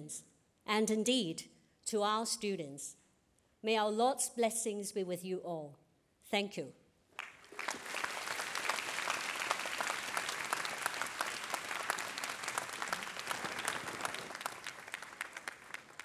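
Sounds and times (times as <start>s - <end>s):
audience applauding: 7.2s - 16.0s.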